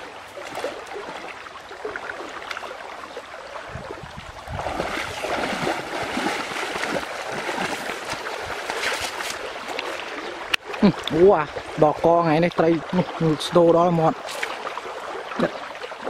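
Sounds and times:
person wading through river water: 0:00.0 - 0:16.0
quick steps splashing in shallows: 0:04.5 - 0:10.2.

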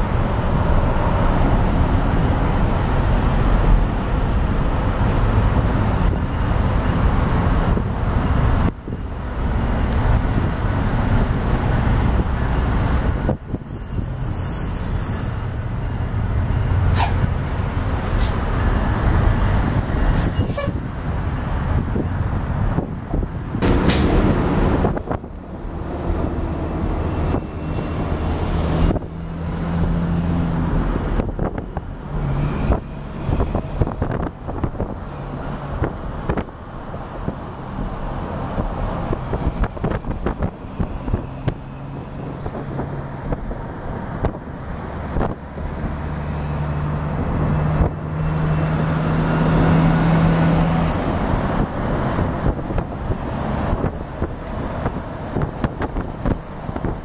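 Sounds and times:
diesel train engine drone: 0:00.0 - 0:57.0
high wheel squeals: 0:12.1 - 0:17.3, 0:27.0 - 0:31.1, 0:40.7 - 0:43.0, 0:44.8 - 0:57.0.

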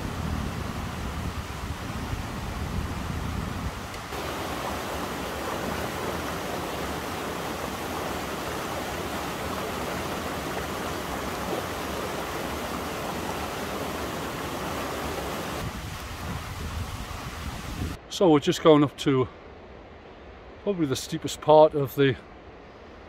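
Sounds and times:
water rushing over boulders: 0:00.0 - 0:18.0.

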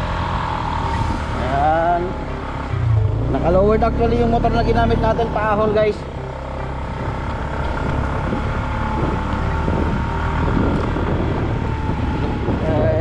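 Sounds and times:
wind noise on microphone: 0:00.8 - 0:01.6, 0:06.9 - 0:13.0.

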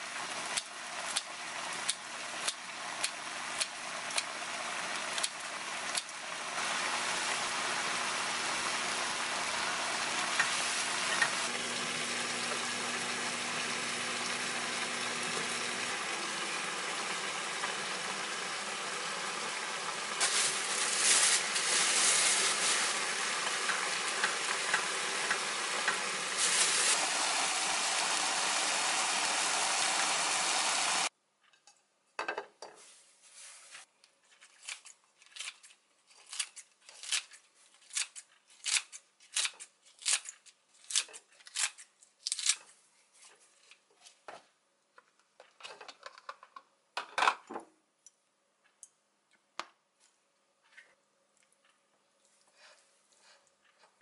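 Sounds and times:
food sizzling in a frying pan: 0:04.3 - 0:31.1
scissors snipping greens: 0:34.6 - 0:42.6.

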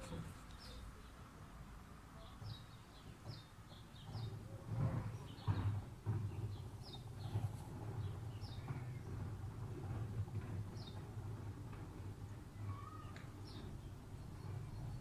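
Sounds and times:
small birds chirping: 0:00.0 - 0:01.4, 0:02.1 - 0:11.5, 0:12.2 - 0:15.0.

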